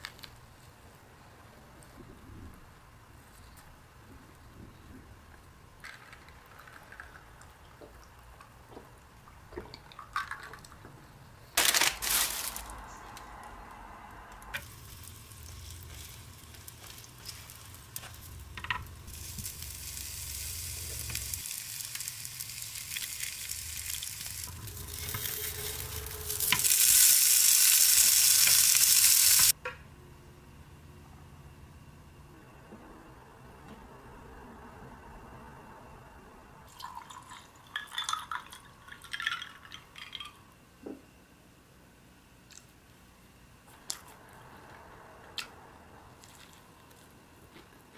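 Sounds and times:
food sizzling in frying pan: 0:14.6 - 0:29.6.

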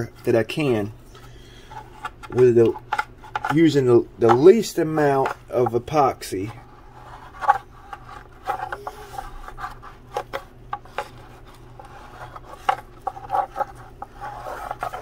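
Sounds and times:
steady low hum: 0:00.0 - 0:15.0
brush scrubbing scratchy strokes: 0:11.2 - 0:15.0.

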